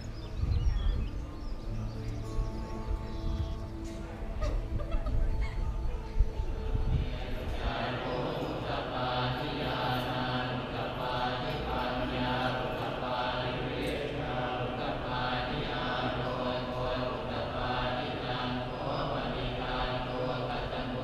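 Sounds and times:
monks chanting: 5.7 - 21.0.

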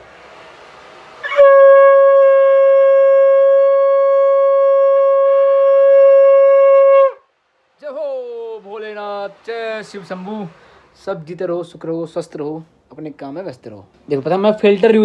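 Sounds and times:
breathy rush of air: 0.0 - 2.1, 7.2 - 11.9
conch shell blown: 0.0 - 7.3.

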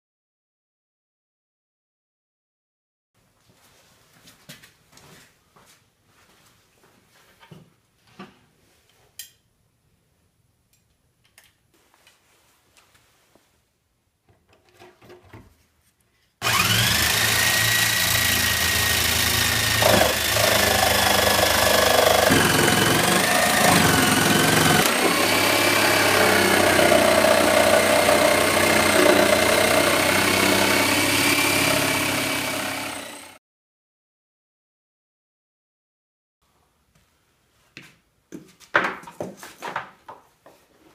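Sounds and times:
electric jigsaw cutting plywood: 16.4 - 33.4.

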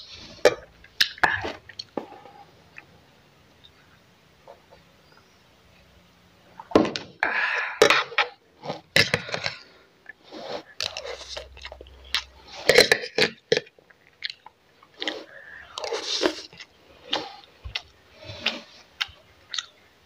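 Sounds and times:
open-mouthed chewing: 8.6 - 12.8, 13.8 - 19.8.

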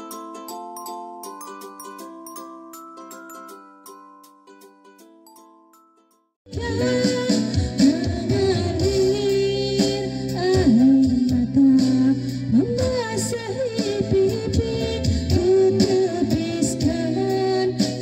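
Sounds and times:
backing track music: 0.0 - 5.9, 6.5 - 18.0
woman singing karaoke: 6.5 - 18.0.

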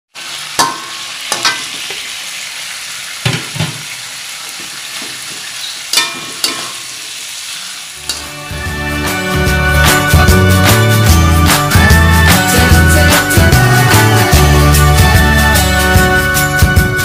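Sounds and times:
noodles sizzling in a wok: 0.1 - 8.7
metal spatula scraping a pan: 0.2 - 2.1, 4.6 - 8.4.

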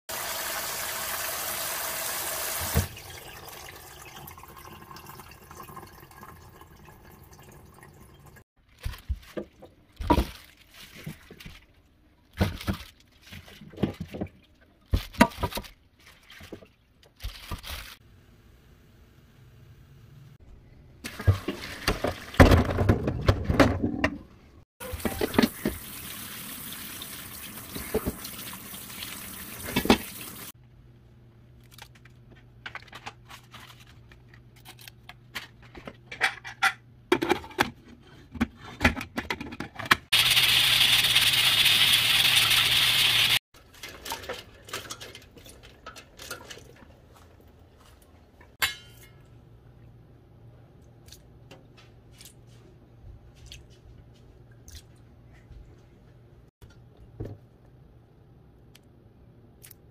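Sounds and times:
tap water running: 0.1 - 8.4, 24.8 - 30.6, 40.1 - 43.4
metal pot clinks: 48.6 - 49.3.

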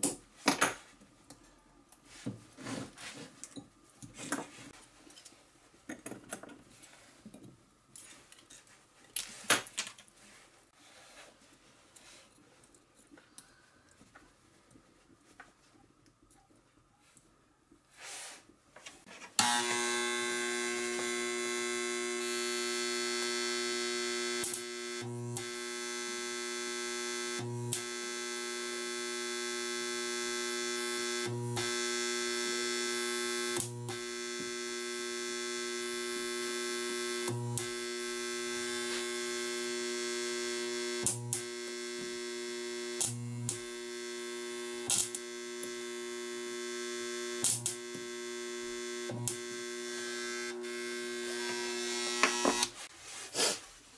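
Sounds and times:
spot welder humming: 19.4 - 52.9.

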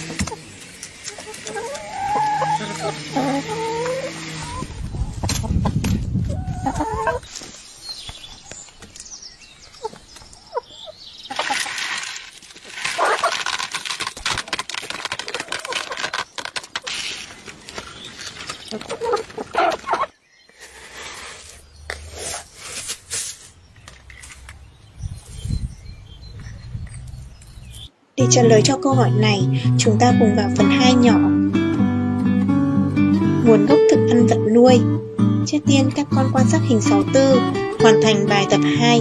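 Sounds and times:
hens clucking: 0.0 - 7.4, 9.8 - 11.8, 12.9 - 13.5, 18.5 - 20.2
hens scratching at feed: 0.0 - 7.8, 11.3 - 24.5.

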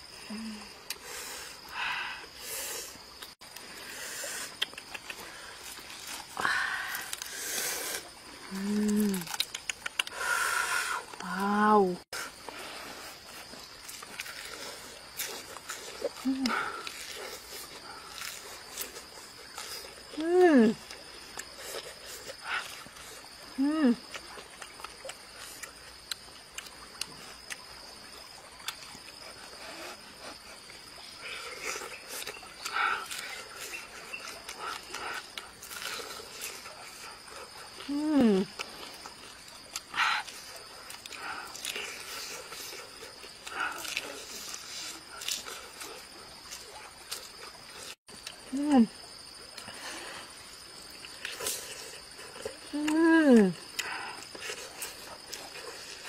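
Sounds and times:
eating noises: 0.0 - 56.0
insects chirring: 0.0 - 56.0
person humming: 0.2 - 0.8, 8.4 - 9.3, 16.2 - 16.8
crackles of crisp fish skin: 7.0 - 10.2.

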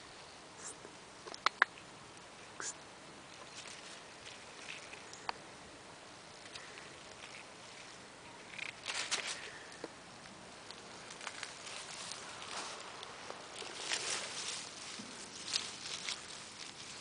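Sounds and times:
rustling of leaves and twigs: 0.0 - 17.0
sharp clicks: 1.2 - 1.8.

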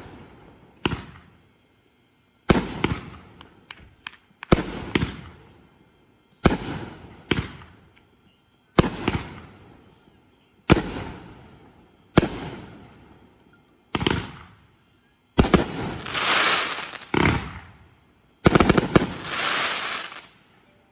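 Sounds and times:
fireworks bursting: 0.0 - 1.4, 2.4 - 5.6, 6.4 - 7.9, 8.7 - 9.8, 10.6 - 13.2, 13.9 - 14.6, 15.4 - 17.8, 18.4 - 20.5
fireworks crackling: 2.4 - 5.5, 8.8 - 9.8, 15.4 - 17.8, 18.4 - 20.5.

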